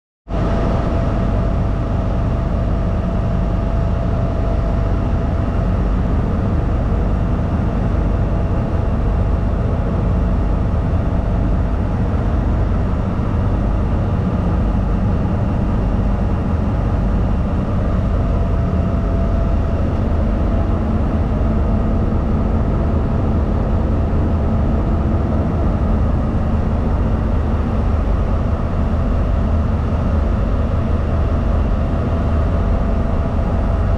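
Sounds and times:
diesel engine drone: 0.3s - 33.9s
steady whine: 0.3s - 33.9s.

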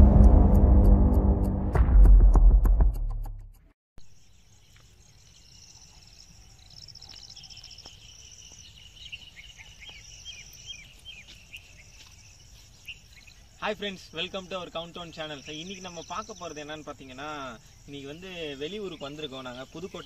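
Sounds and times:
intro music: 0.0s - 3.4s
insects trilling: 4.0s - 20.0s.

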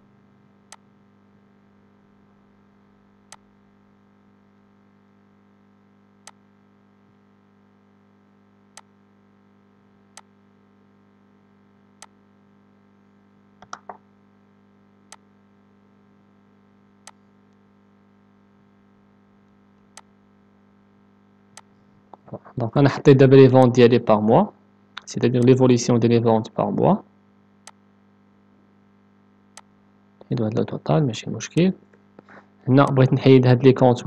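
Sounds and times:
faint steady hum: 0.0s - 34.0s
computer mouse clicking: 13.6s - 14.0s.

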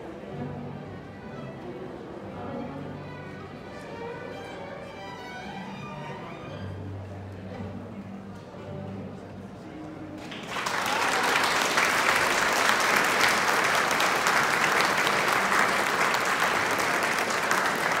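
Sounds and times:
audience applauding: 10.2s - 18.0s.

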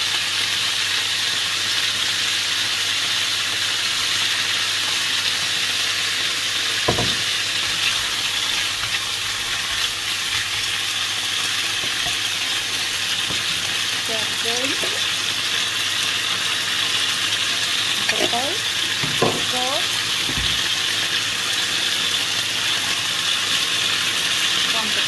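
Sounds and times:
pork sizzling in frying pan: 0.0s - 25.0s
sauce pouring: 3.1s - 24.7s
knock: 6.9s - 7.2s, 20.3s - 20.6s.

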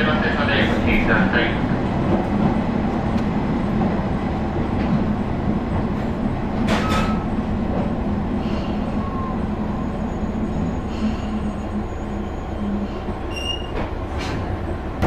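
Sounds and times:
rail running noise: 0.0s - 15.0s
train engine drone: 0.0s - 15.0s
faint wheel squeal: 8.9s - 13.8s.

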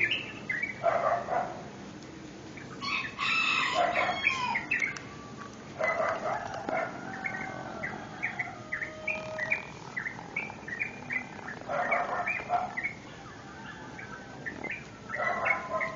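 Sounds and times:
small birds chirping: 0.0s - 1.7s, 3.8s - 15.9s
rooster crowing: 2.8s - 9.9s, 13.1s - 15.9s.

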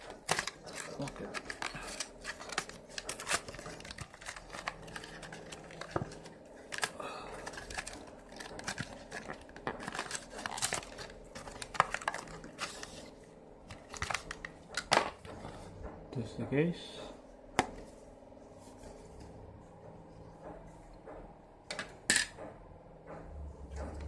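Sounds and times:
box rustling and clicking: 0.0s - 13.1s, 13.7s - 15.5s.

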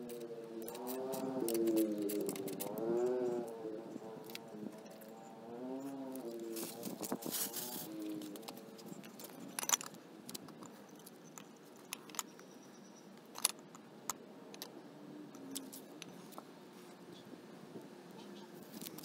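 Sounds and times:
metallic clicks and jingles of keys: 0.6s - 3.1s, 6.6s - 12.4s.

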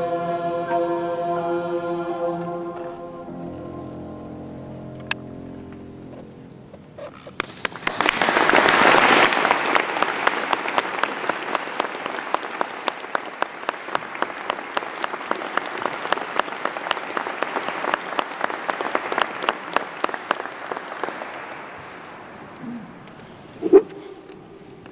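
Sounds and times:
audience applauding: 7.2s - 23.2s.

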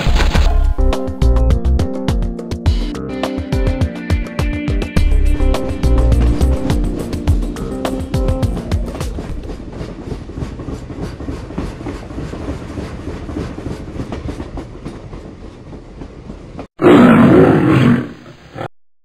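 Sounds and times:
low pulsing rumble: 9.1s - 10.0s
loud growling roar: 16.8s - 18.7s.

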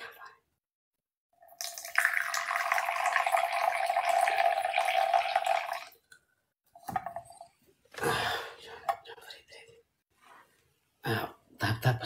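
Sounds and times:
coffee pouring into a cup: 1.4s - 6.0s.

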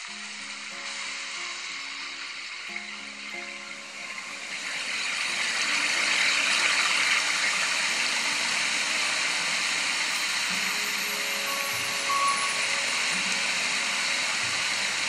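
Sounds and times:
water rushing over rocks: 0.0s - 15.0s.

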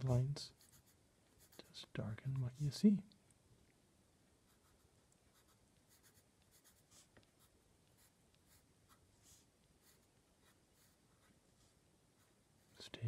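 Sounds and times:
pencil scratching on card: 0.5s - 1.7s, 4.5s - 9.0s, 9.8s - 11.2s.

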